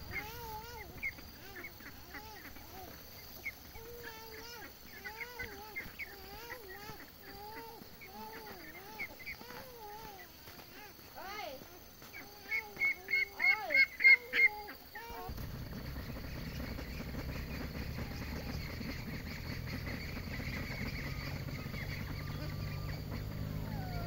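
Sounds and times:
steady low rumble: 15.3s - 23.9s.

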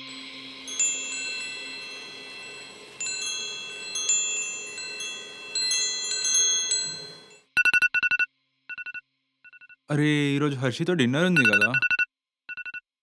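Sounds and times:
metal wind chime ringing: 0.0s - 7.5s.

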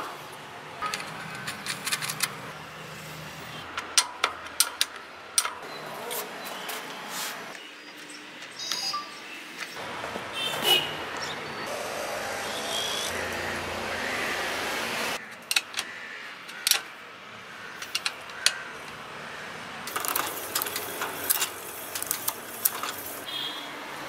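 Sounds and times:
spanner clicking on metal: 3.7s - 5.6s, 15.3s - 15.9s, 16.5s - 16.9s, 17.8s - 19.0s, 19.9s - 23.2s.

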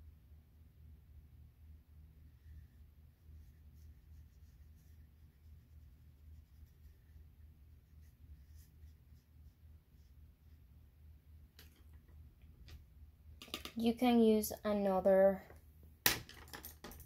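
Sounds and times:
low steady hum: 0.0s - 17.0s
brush strokes on paper: 2.2s - 10.9s.

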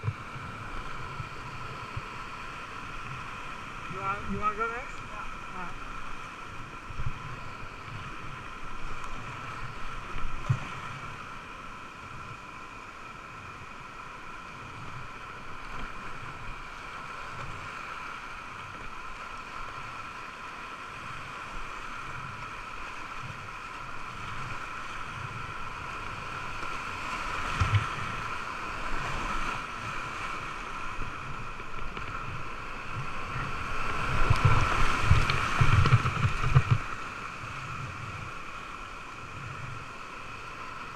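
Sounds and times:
muffled whitewater roar: 0.0s - 40.9s
paddle strokes splashing: 14.9s - 40.9s.

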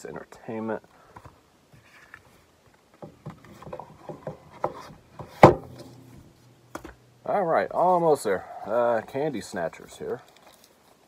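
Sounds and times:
plastic case being handled: 1.2s - 6.1s
sharp knock: 5.4s - 5.9s.

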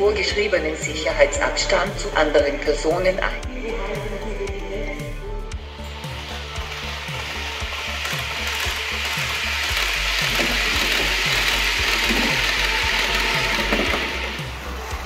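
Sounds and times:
background music with steady beat: 0.0s - 15.0s
model train running: 0.0s - 15.0s.

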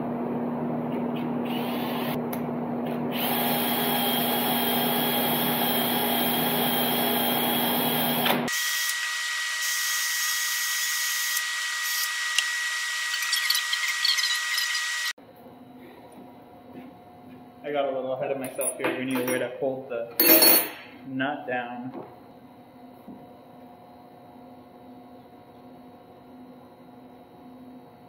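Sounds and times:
cordless drill with wire brush: 3.2s - 15.2s.

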